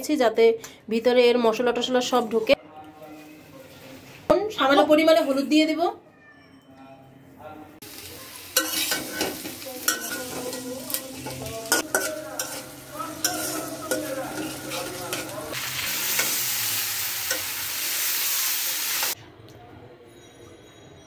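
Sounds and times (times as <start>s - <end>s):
potatoes sizzling in oil: 7.8s - 19.2s
metal spatula scraping pan: 8.6s - 19.2s.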